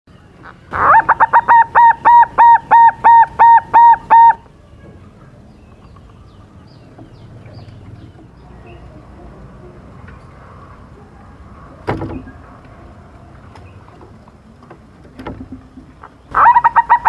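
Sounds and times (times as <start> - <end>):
dove cooing: 0.5 - 4.4, 16.3 - 17.0.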